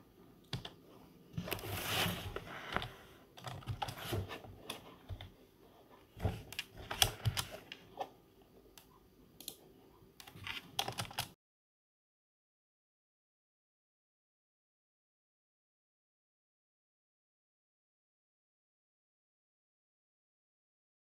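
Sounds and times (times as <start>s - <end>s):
keyboard typing: 0.4s - 0.8s, 2.4s - 5.4s, 6.3s - 7.9s, 10.2s - 11.4s
mouse clicks: 8.7s - 9.6s.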